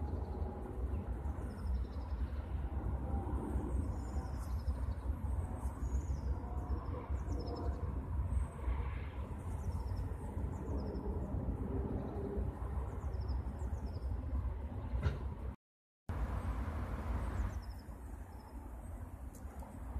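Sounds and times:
small birds chirping: 0.0s - 2.6s, 3.8s - 7.8s, 17.2s - 19.8s
low outdoor rumble: 0.0s - 19.9s.

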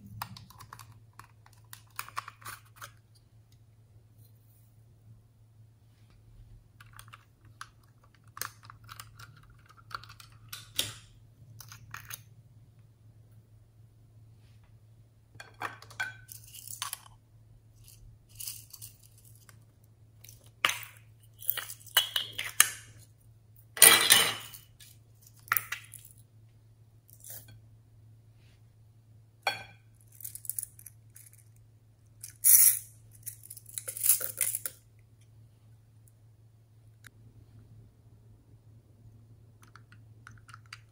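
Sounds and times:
beads clinking into bowl: 32.2s - 34.7s.

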